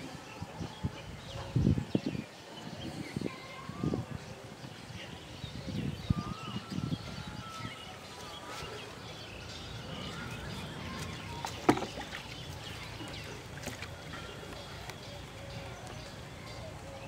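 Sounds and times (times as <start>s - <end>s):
small birds chirping: 0.0s - 17.0s
knock on plastic bucket: 11.4s - 12.2s.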